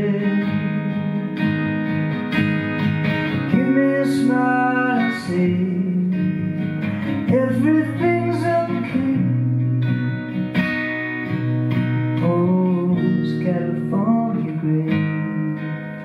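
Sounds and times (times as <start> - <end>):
man singing: 0.0 - 1.4, 3.4 - 10.0, 12.2 - 16.0
acoustic guitar strummed: 0.0 - 16.0.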